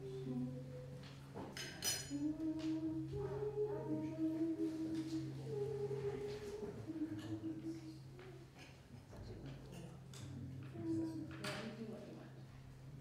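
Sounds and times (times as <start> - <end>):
person chanting: 0.0 - 1.2, 2.1 - 8.5, 10.6 - 11.4.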